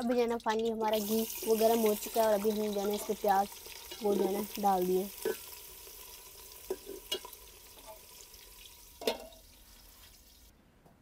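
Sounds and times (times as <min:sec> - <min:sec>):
onions sizzling in a pot: 0:00.8 - 0:10.5
lid clinking on pot: 0:06.6 - 0:08.1, 0:09.0 - 0:09.4.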